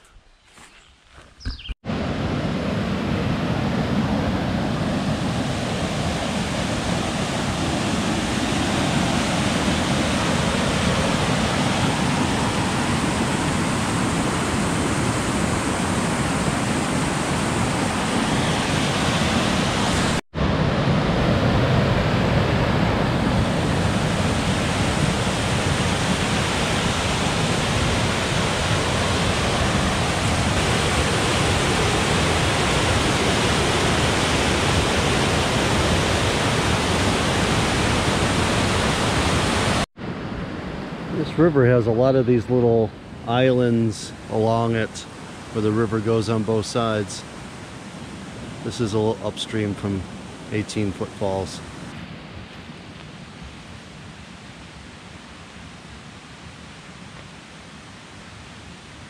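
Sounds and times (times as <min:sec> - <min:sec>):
whitewater rapids rushing: 0:23.5 - 0:39.8.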